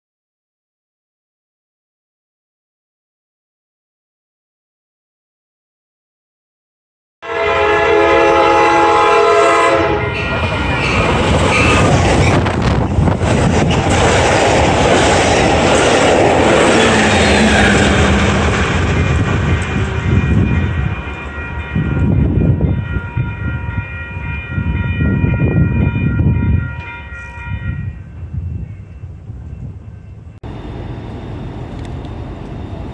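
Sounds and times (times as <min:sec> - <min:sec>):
train passing at speed: 0:07.3 - 0:32.9
steady high ringing tone: 0:19.7 - 0:32.9.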